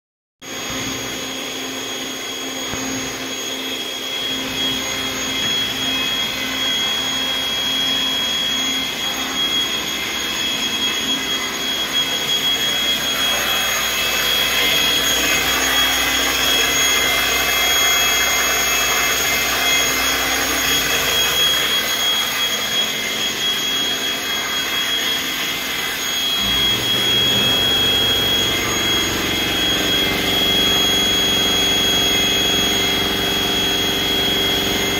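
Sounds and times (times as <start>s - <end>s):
mill spindle whirring and whining: 0.4s - 34.9s
low hum: 25.6s - 34.9s.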